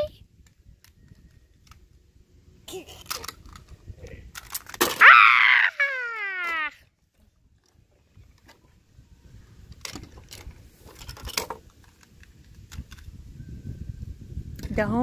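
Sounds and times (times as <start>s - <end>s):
plastic toys clicking together: 2.8s - 4.9s.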